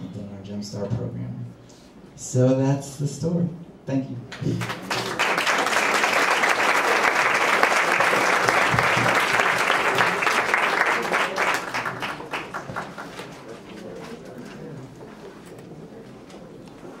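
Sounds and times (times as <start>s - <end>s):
audience applauding: 4.4s - 13.5s.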